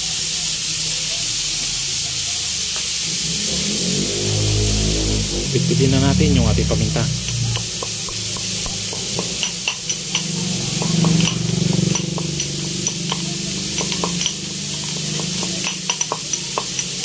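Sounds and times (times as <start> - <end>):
meat sizzling in oil: 0.0 - 17.0
sharp clicks and pops: 7.3 - 14.4.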